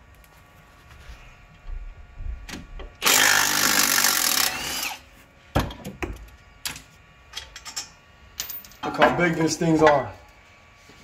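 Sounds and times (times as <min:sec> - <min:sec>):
power tool running: 0:03.0 - 0:05.1.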